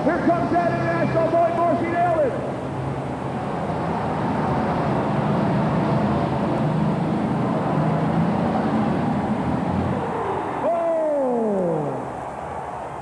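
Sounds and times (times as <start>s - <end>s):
tractor engine running hard: 2.4s - 10.5s.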